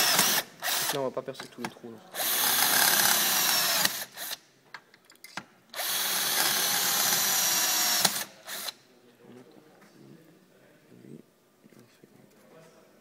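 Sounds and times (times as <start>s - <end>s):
electric drill boring metal: 0.0s - 1.0s, 2.2s - 4.4s, 5.8s - 8.7s.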